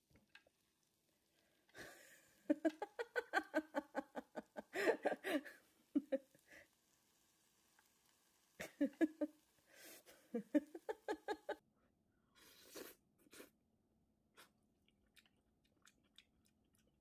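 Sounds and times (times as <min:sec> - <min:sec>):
woman laughing: 0:01.8 - 0:06.4, 0:08.6 - 0:11.6.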